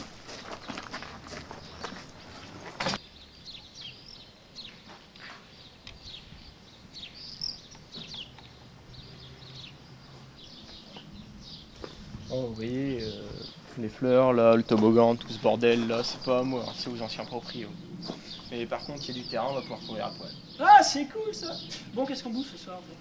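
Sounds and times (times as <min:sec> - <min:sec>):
footsteps: 0:00.0 - 0:03.0, 0:11.7 - 0:12.1, 0:13.6 - 0:17.0, 0:18.0 - 0:18.5
small birds chirping: 0:00.0 - 0:23.0.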